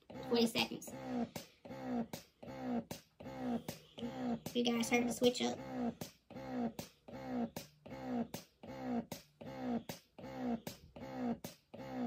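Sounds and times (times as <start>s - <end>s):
breast pump motor whirring: 0.0s - 12.0s.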